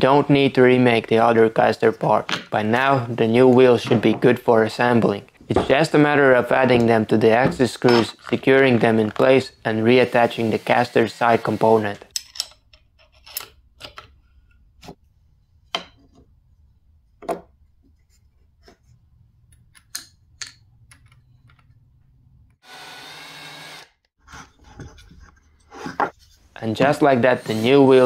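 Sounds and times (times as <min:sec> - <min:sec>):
metal tools clinking: 0:07.6 - 0:08.4
power tool whirring: 0:22.6 - 0:24.0.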